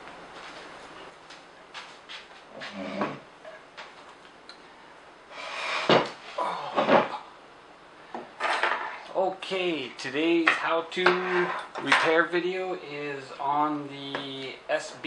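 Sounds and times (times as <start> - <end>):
hard objects knocked on worktable: 5.9 - 6.2.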